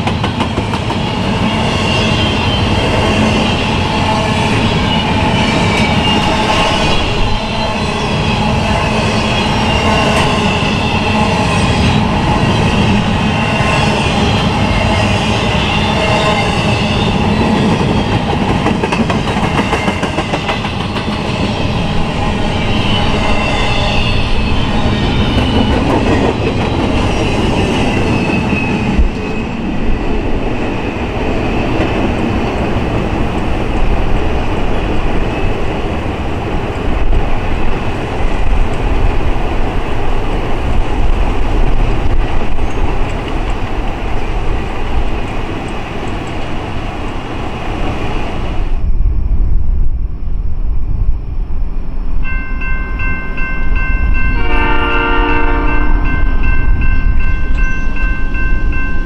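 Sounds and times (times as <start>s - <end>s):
freight train wheels rumbling: 0.0s - 59.0s
high wheel squeal: 1.0s - 18.2s, 21.0s - 25.9s.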